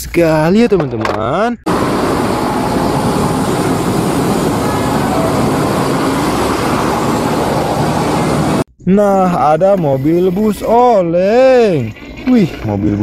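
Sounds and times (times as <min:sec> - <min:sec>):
coach engines and road noise: 0:01.7 - 0:08.7.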